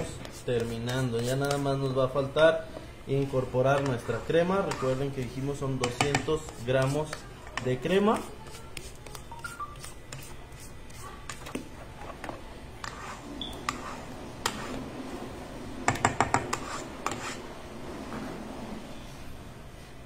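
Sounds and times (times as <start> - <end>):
spatula scraping metal bowl: 0.0 - 2.0, 3.2 - 9.2, 12.8 - 14.9, 16.2 - 17.5.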